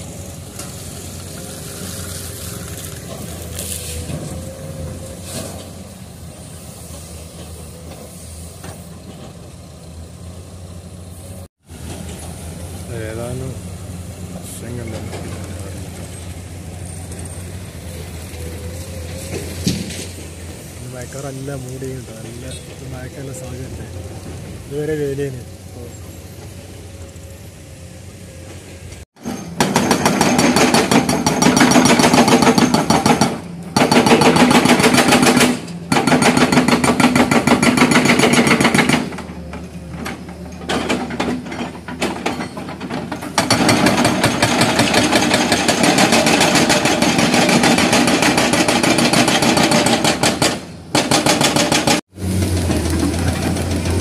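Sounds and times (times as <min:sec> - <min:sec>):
hydraulic breaker hammering rock: 0:29.2 - 0:39.4, 0:40.1 - 0:54.0.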